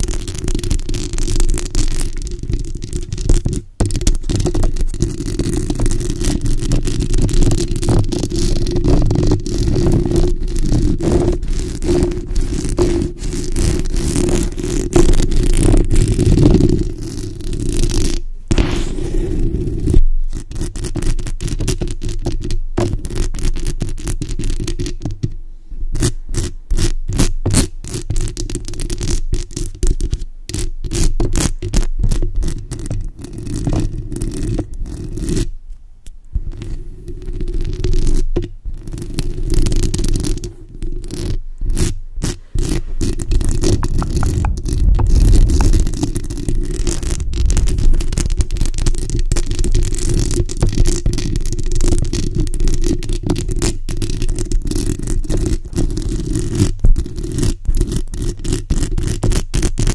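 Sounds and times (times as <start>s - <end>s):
fingernails scratching microphone grille: 0.0s - 25.0s, 36.4s - 59.9s
low rumble: 44.0s - 48.9s.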